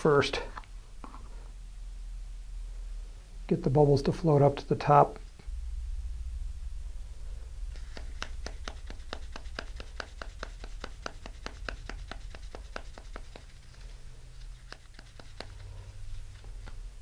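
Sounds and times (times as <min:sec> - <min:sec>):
fingers flicking plastic syringe: 0:07.8 - 0:13.8, 0:14.4 - 0:16.8.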